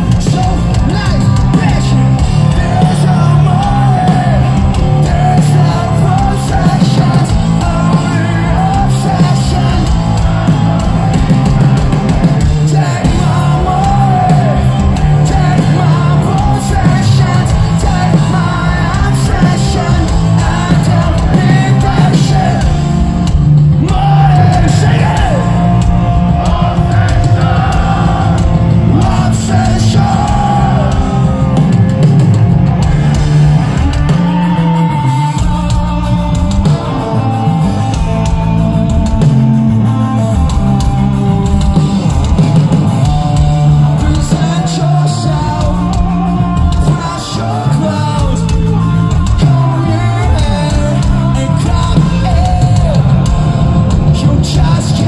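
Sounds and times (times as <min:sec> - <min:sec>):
person singing and yelling: 0:00.0 - 0:11.5, 0:12.3 - 0:22.9, 0:23.7 - 0:31.7, 0:42.9 - 0:55.0
live rock band playing: 0:00.0 - 0:55.0.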